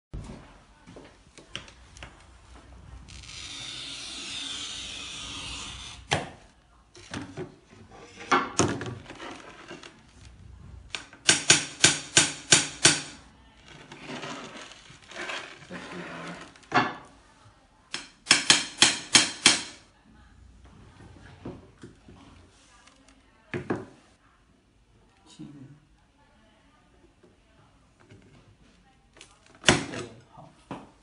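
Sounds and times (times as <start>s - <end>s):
glass cutter scoring glass: 3.2s - 6.2s.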